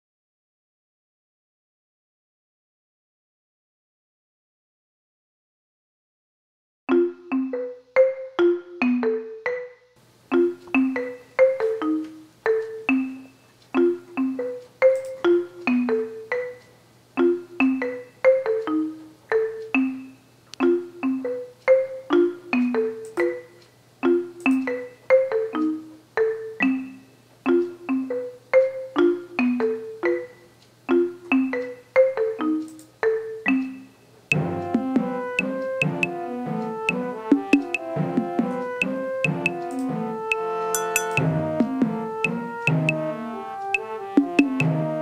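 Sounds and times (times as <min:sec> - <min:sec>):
light tune of struck notes: 0:33.5 - 0:44.8.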